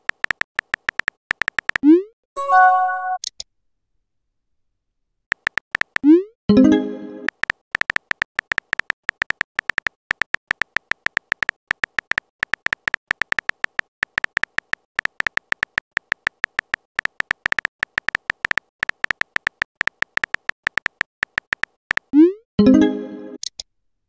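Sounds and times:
phone keyboard typing clicks: 0.0 - 1.9, 5.3 - 6.1, 7.3 - 22.2.

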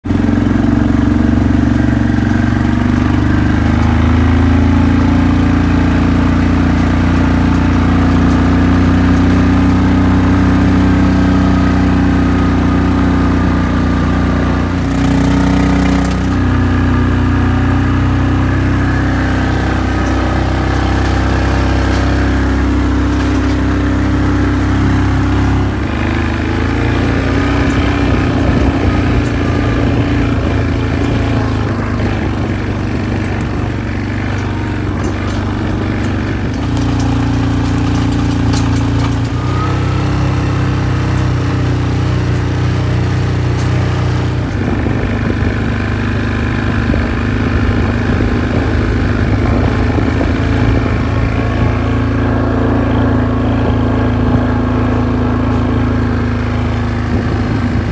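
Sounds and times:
quad bike engine running: 0.0 - 57.9.

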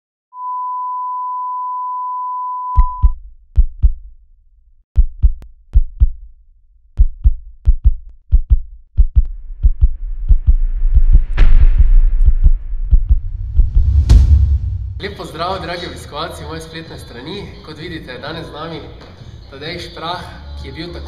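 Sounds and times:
steady electronic beep: 0.4 - 3.2
deep heartbeat thumps: 2.8 - 4.2, 5.0 - 6.3, 6.9 - 15.0
rising whoosh: 9.3 - 15.0.

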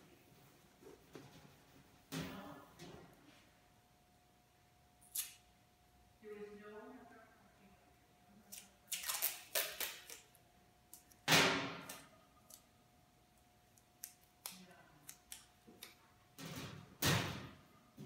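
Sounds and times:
paper tape ripping: 8.5 - 10.3.

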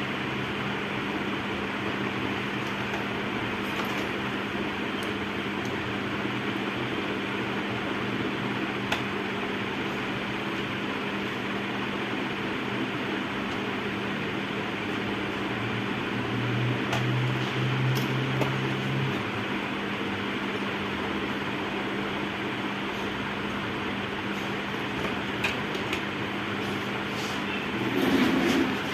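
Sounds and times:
room fan whirring: 0.0 - 28.9.

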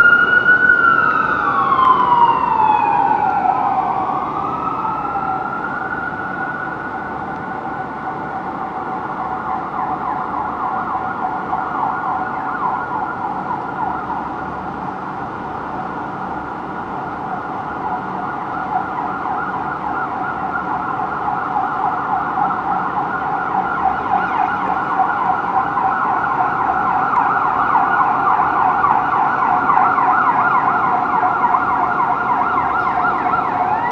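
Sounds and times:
emergency vehicle sirens: 0.0 - 33.9.

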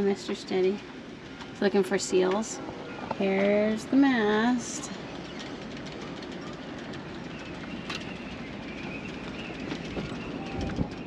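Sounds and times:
strong wind on microphone: 2.6 - 11.0.

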